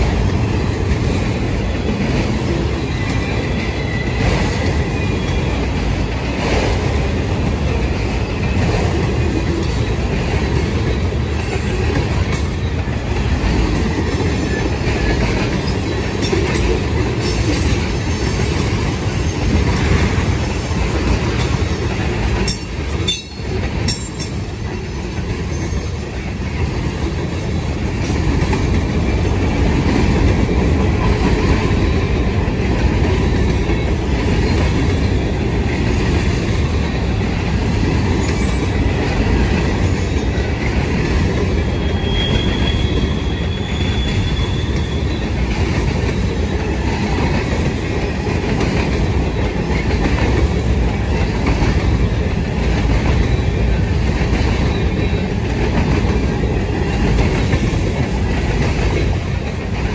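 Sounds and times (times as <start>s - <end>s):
train wheels rumbling on rails: 0.0s - 59.9s
high-pitched wheel squeal: 41.6s - 45.4s.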